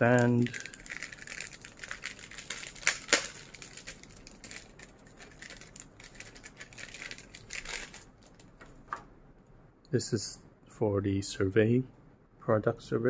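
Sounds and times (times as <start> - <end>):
plastic bag crinkling: 0.0 - 9.0
sharp loud plastic crackle: 0.1 - 9.0.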